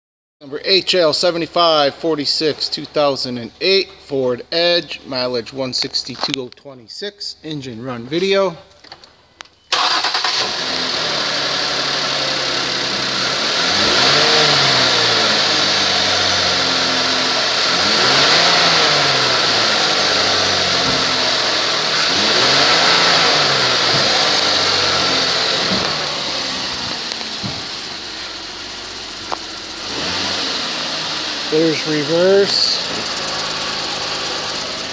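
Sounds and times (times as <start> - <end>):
car engine revving: 9.7 - 34.9
car engine starting and idling: 9.7 - 34.9.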